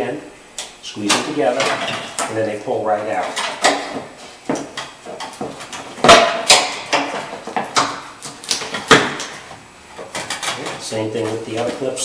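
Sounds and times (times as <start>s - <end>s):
loud knocks: 5.4s - 8.0s, 8.7s - 9.3s.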